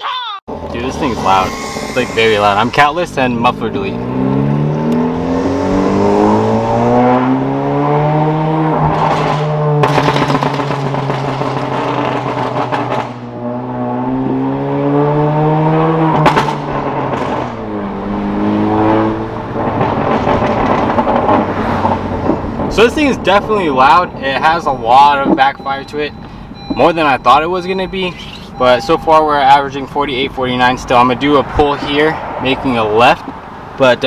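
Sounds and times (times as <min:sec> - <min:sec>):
car engine accelerating hard: 0:00.5 - 0:24.6
exhaust backfire pops: 0:08.7 - 0:13.4, 0:16.1 - 0:17.7, 0:19.4 - 0:23.3.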